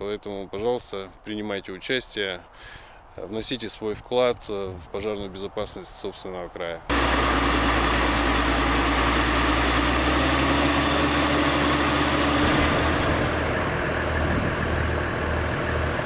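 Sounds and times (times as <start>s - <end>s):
bulldozer diesel engine running: 6.9s - 16.0s.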